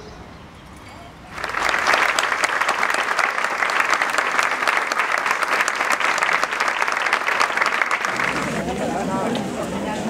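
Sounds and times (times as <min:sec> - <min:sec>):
crowd clapping: 0:01.3 - 0:09.7.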